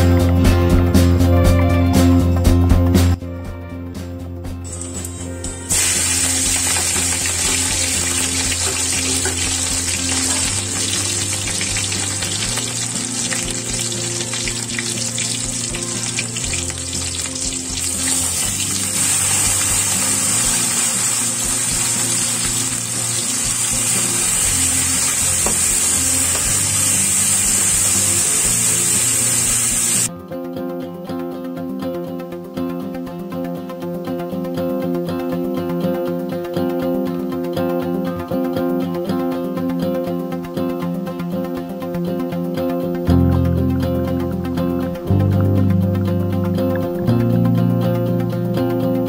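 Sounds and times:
food sizzling in hot oil: 4.7s - 30.1s.

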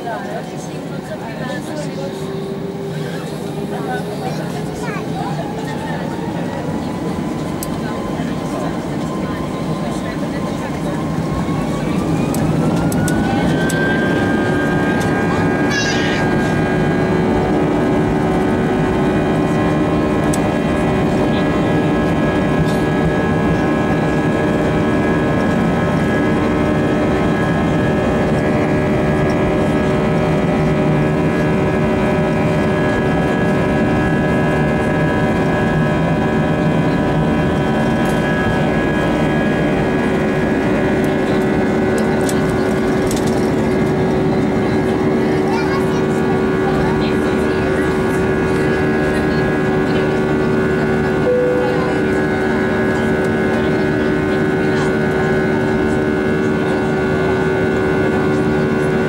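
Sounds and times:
jet engines at takeoff thrust: 0.0s - 59.0s.

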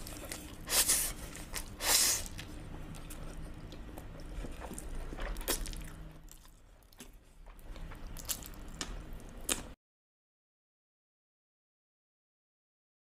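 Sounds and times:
person slurping noodles: 0.0s - 2.4s
person chewing with wet clicks: 0.0s - 9.8s.

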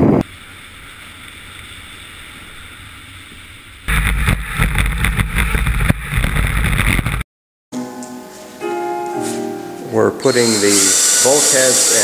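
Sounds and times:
heavy rumble: 3.9s - 7.2s.

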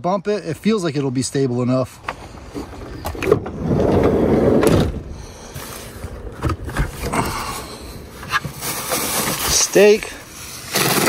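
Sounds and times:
sliding door rolling open: 3.2s - 5.0s.

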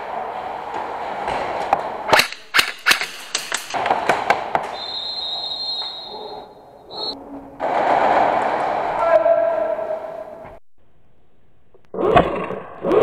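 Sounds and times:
airsoft guns firing: 2.1s - 4.8s.

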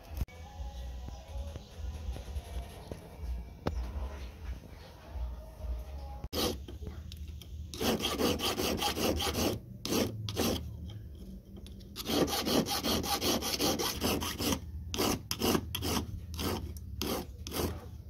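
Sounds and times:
hand file rasping on metal: 6.3s - 6.6s, 7.7s - 10.7s, 12.0s - 17.9s.

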